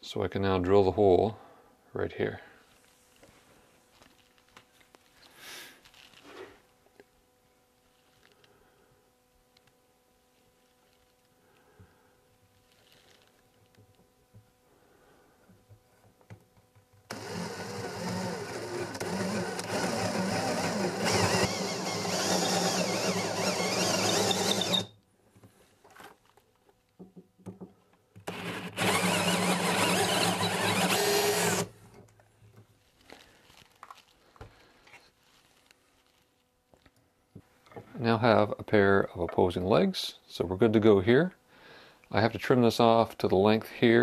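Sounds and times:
power drill boring into wood: 0:17.1 - 0:24.9, 0:28.2 - 0:31.7.

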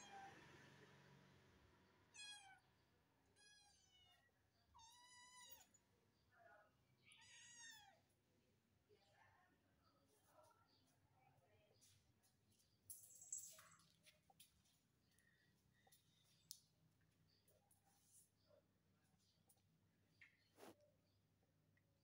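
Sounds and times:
kitten meowing: 0:02.1 - 0:02.6, 0:04.8 - 0:05.7.

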